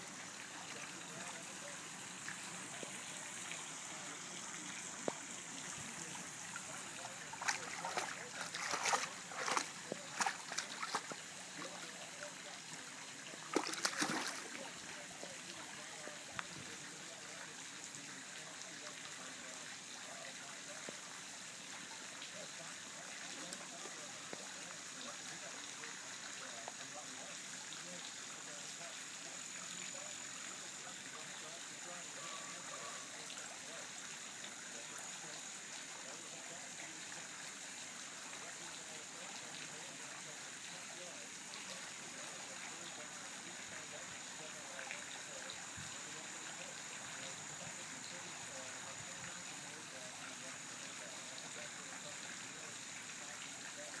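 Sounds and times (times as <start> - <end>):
water trickling: 0.0 - 54.0
dog paws splashing in water: 6.6 - 11.7, 13.5 - 14.6.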